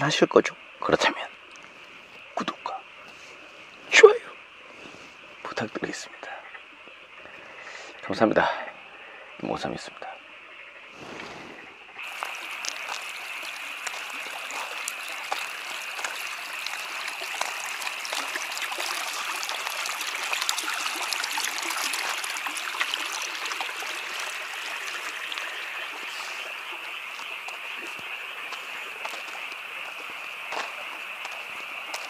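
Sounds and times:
even hiss: 0:01.8 - 0:06.5, 0:10.8 - 0:17.3.

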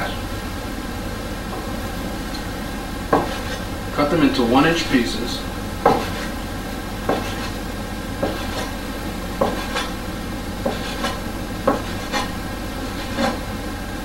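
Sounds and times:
steady low hum: 0:00.0 - 0:14.0
knife knocking on cutting board: 0:05.8 - 0:06.2.

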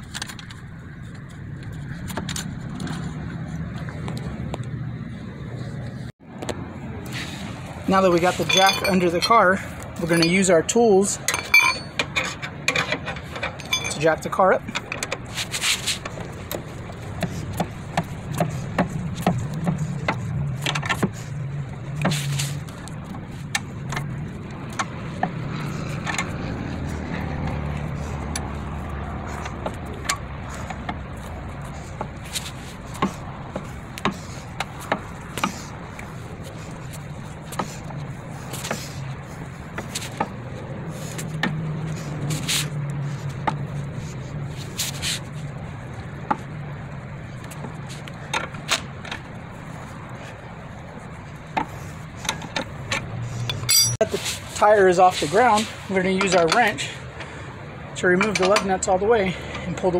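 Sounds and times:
jack handle metal clicks and scrapes: 0:08.0 - 0:21.2, 0:51.5 - 0:54.3, 0:55.5 - 0:56.9, 0:58.2 - 0:58.8.

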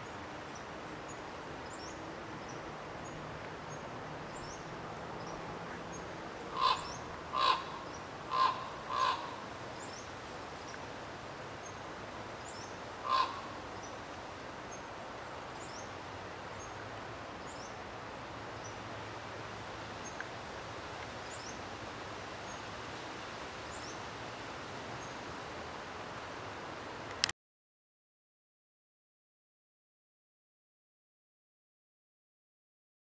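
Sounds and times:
crow cawing: 0:06.5 - 0:09.4, 0:13.0 - 0:13.5.

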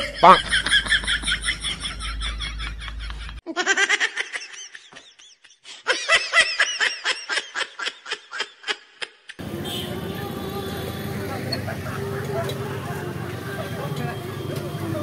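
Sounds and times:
high-pitched laughter effect: 0:00.0 - 0:05.2
street ambience: 0:09.4 - 0:15.0.

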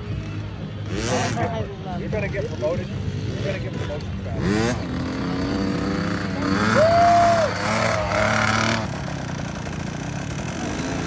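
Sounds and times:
dirt bike engine revving: 0:00.8 - 0:01.6, 0:03.0 - 0:11.0.

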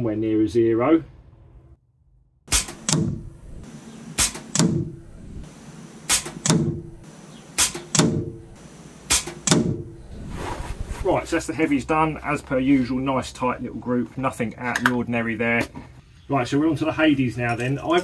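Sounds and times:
air rifle shots cracking: 0:02.5 - 0:09.9
pellet knocking target: 0:07.6 - 0:08.4, 0:09.1 - 0:09.8.

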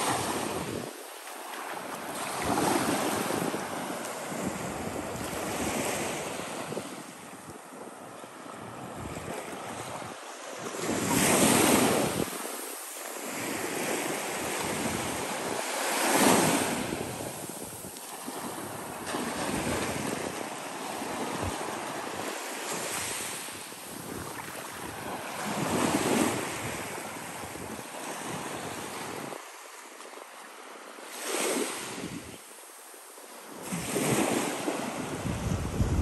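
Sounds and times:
small waves breaking on sand: 0:00.0 - 0:36.0
wind buffeting microphone: 0:08.6 - 0:12.5, 0:13.3 - 0:20.4, 0:23.9 - 0:29.4, 0:33.7 - 0:36.0.

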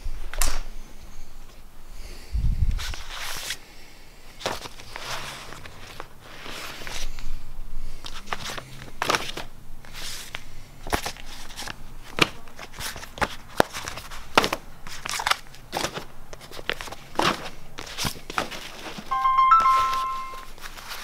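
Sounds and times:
plastic bags rustling and crinkling: 0:08.1 - 0:19.1.

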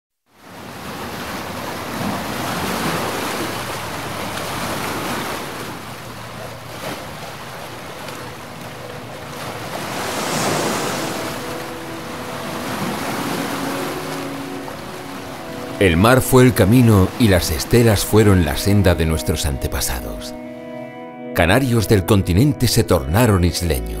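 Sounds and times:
ocean waves breaking: 0:00.3 - 0:21.0
faint steady tones: 0:05.7 - 0:17.3.

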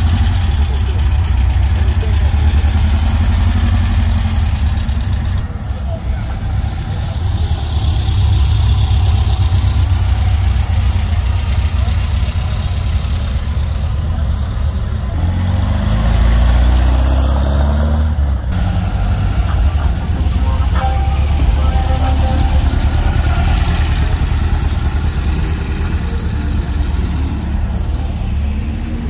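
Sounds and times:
air-cooled engines running: 0:18.6 - 0:29.0.

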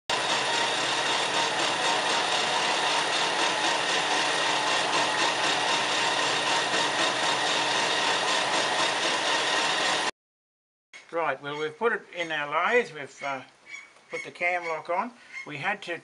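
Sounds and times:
metal lathe running: 0:00.1 - 0:10.1.

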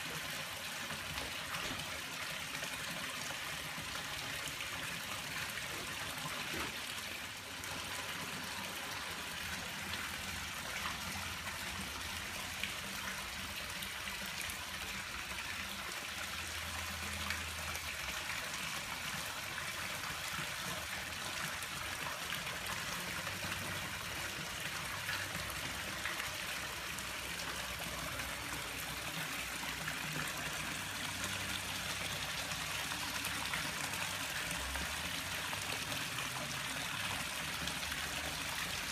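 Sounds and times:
water trickling in pool: 0:00.0 - 0:38.9.

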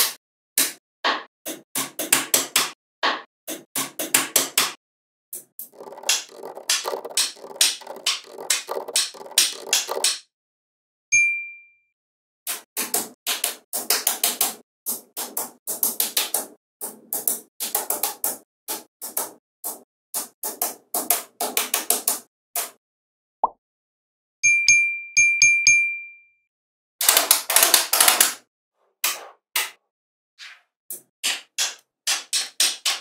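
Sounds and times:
magnetic balls clicking together: 0:05.6 - 0:10.2
short ringing pings: 0:11.1 - 0:11.9, 0:24.4 - 0:26.4.

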